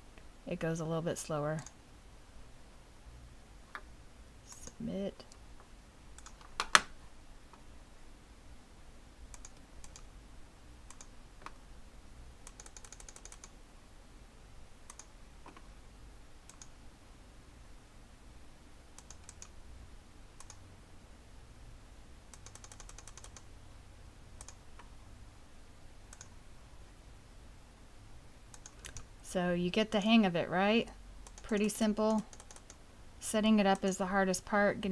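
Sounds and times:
mouse and keyboard clicking: 6.2 - 6.9, 9.3 - 10.1, 10.9 - 11.6, 12.4 - 13.5, 22.3 - 23.4, 24.4 - 24.6, 28.5 - 29.1, 31.2 - 32.8.

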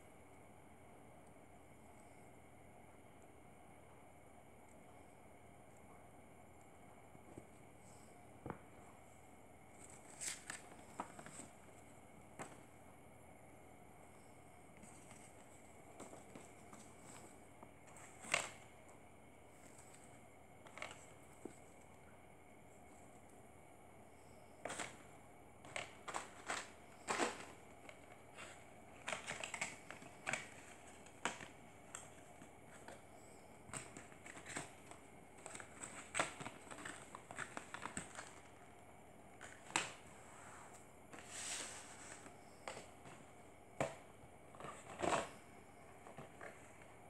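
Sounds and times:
packaging being handled: 24.6 - 25.0, 25.6 - 38.7, 41.1 - 45.4
packaging rustle: 25.7 - 33.0, 33.7 - 38.6.

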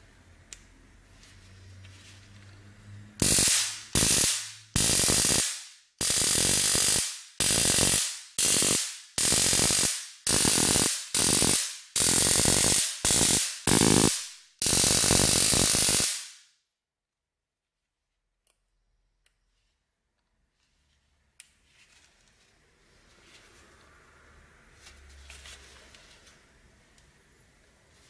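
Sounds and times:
stun gun electric crackle: 3.2 - 16.4.

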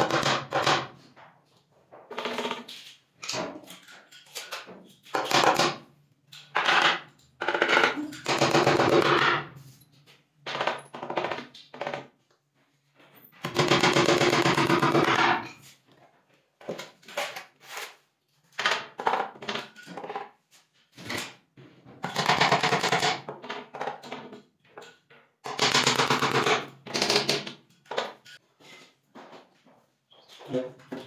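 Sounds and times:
hammer tapping nails into board: 13.4 - 15.4, 25.5 - 27.6.

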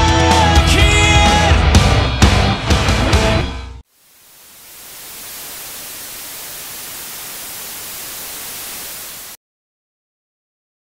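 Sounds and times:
rock song: 0.0 - 3.8
steady static hiss: 3.8 - 9.4.

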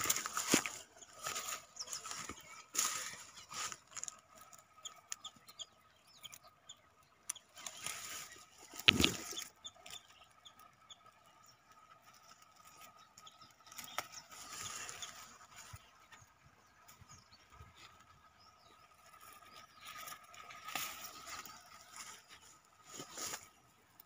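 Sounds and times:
plant leaves rustling: 0.0 - 5.2, 7.6 - 9.5, 13.7 - 16.0, 19.0 - 24.0
small birds chirping: 0.0 - 24.0.

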